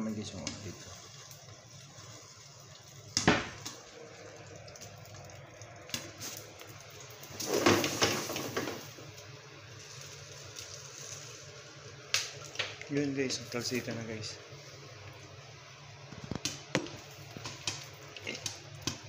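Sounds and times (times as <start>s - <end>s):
popcorn popping against lid: 3.1s - 3.9s, 16.1s - 19.0s.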